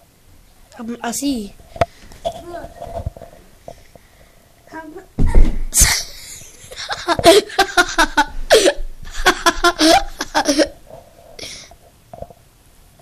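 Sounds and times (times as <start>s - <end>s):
person laughing: 6.1s - 10.8s.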